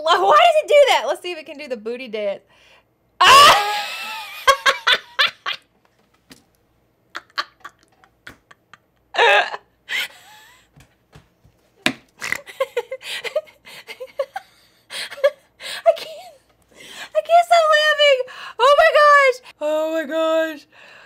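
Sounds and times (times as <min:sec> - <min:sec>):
woman laughing: 0:03.2 - 0:05.7, 0:07.1 - 0:10.7, 0:12.2 - 0:16.5.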